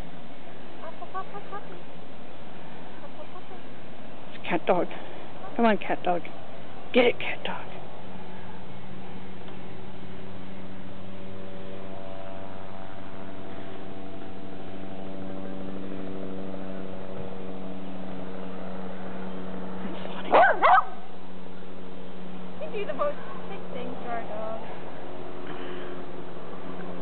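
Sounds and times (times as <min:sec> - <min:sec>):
steady low hum: 0:00.0 - 0:27.0
puppy barking: 0:20.3 - 0:21.0.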